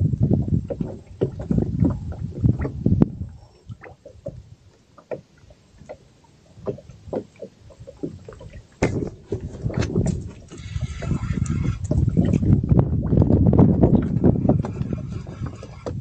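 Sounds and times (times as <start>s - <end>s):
water sounds: 0.0s - 16.0s
light knocks on boat: 6.6s - 10.3s.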